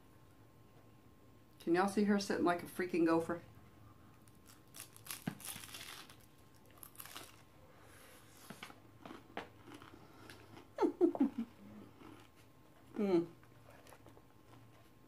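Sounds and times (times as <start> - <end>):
taco shell crunching: 4.2 - 7.5, 8.6 - 10.4
chewing: 8.5 - 10.7.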